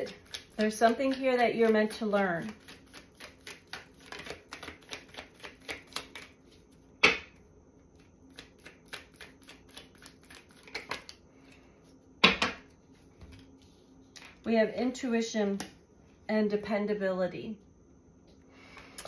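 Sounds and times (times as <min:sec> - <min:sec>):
cards shuffling clicks: 0:02.4 - 0:06.4
cards slapping: 0:02.4 - 0:06.4, 0:08.3 - 0:11.2.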